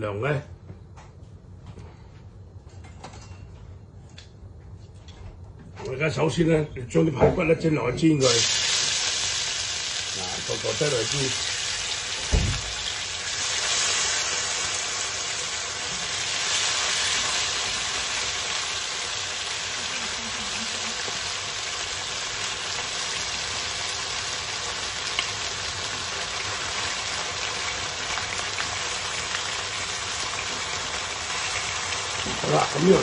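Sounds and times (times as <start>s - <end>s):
meat sizzling in hot oil: 8.2s - 33.0s.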